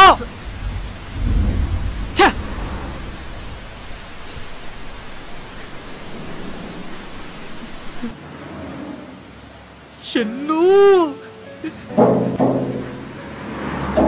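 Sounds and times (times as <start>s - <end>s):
rain hissing: 0.0s - 14.0s
low rumble: 0.2s - 8.6s.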